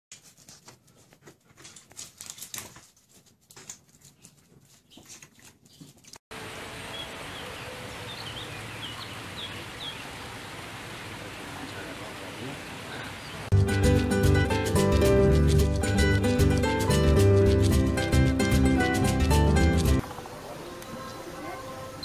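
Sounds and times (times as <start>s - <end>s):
animal claws scampering on concrete: 0.1s - 6.2s
steady outdoor hiss: 6.3s - 22.0s.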